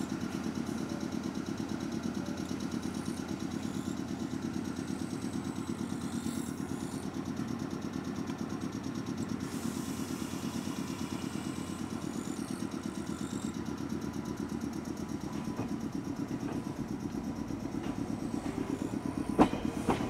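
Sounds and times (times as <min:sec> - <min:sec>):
electric train humming: 0:15.1 - 0:20.0.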